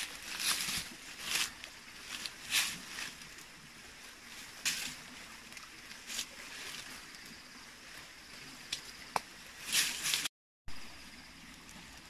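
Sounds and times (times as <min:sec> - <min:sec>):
dry leaves rustling and scraping: 0:00.0 - 0:07.2, 0:09.6 - 0:10.3.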